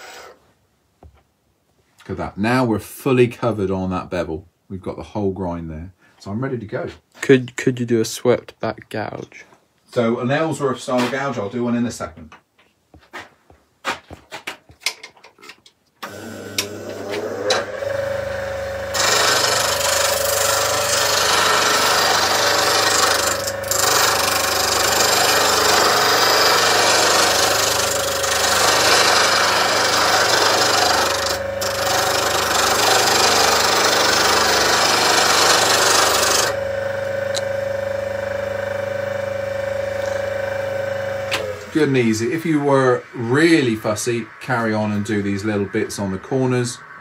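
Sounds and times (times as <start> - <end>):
bench grinder motor humming: 16.0 - 42.0
metal tool grinding on wheel: 16.6 - 42.2.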